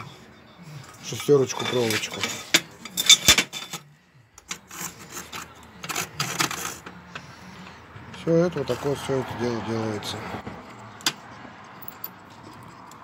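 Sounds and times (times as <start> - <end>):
rod scraping steel tube: 4.4 - 6.9.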